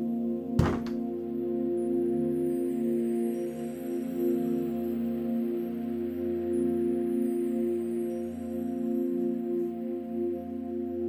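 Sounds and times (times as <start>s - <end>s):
soft new-age music: 0.0s - 11.0s.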